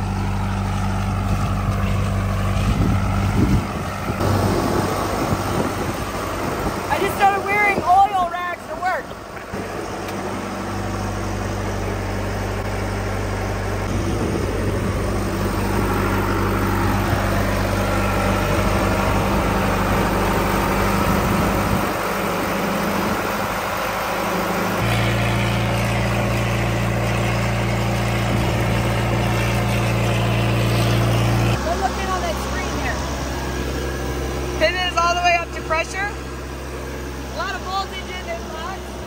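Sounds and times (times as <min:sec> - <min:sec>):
diesel engine running steadily: 0:00.0 - 0:39.0.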